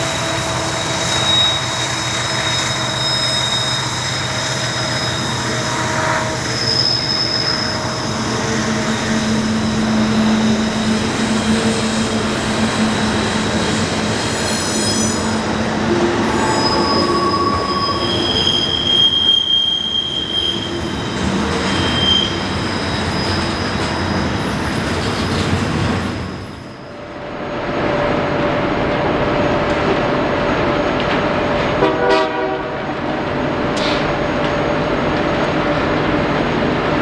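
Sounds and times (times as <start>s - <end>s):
train wheels squealing: 0.0s - 27.0s
freight train rumbling: 0.0s - 37.0s.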